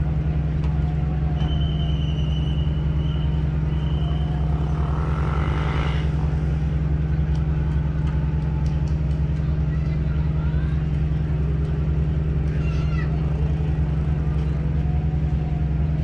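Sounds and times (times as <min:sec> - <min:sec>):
large engine droning: 0:00.0 - 0:16.0.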